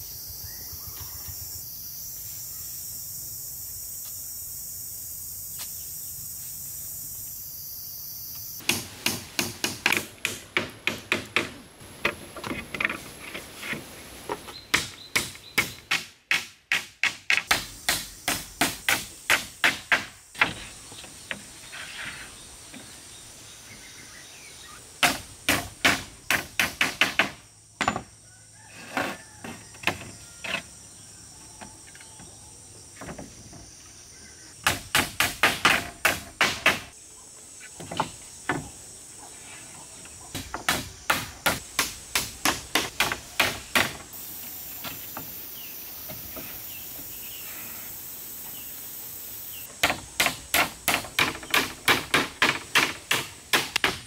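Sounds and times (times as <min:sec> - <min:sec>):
hand tool striking wood: 0:08.6 - 0:13.0, 0:13.7 - 0:20.7, 0:25.0 - 0:28.1, 0:34.6 - 0:36.9, 0:40.4 - 0:44.1, 0:49.8 - 0:54.0.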